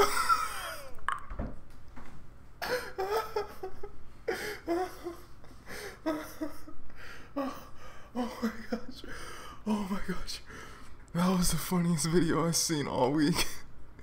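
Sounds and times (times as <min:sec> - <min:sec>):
man laughing hard: 0:00.0 - 0:01.0, 0:02.6 - 0:09.3.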